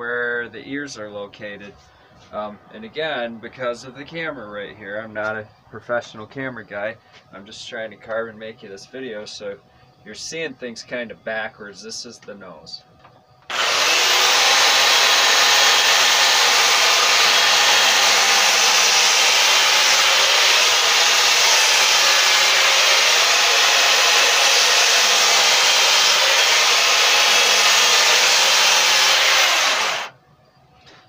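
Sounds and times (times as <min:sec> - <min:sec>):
electric chainsaw cutting wood: 0:13.5 - 0:30.1.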